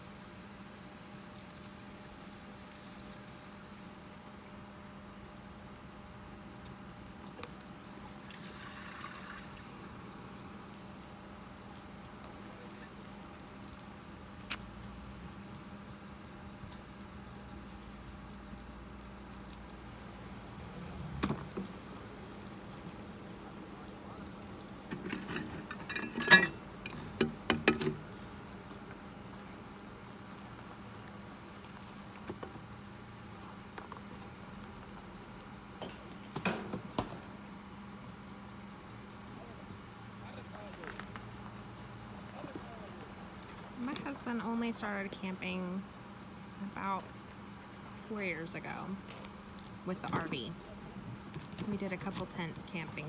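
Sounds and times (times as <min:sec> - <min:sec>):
waste water pouring from hose: 0:00.0 - 0:35.1
hose knocking and clattering: 0:24.9 - 0:28.0.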